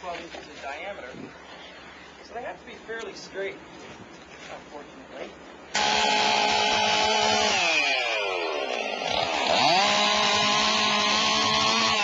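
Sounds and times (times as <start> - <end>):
chainsaw running at high revs: 5.8 - 12.0.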